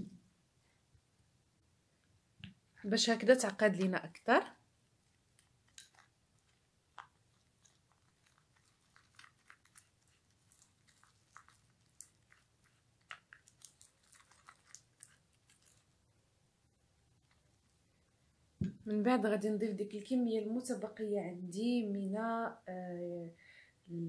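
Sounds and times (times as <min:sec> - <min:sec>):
plastic spoon stirring paste: 0:05.0 - 0:16.0.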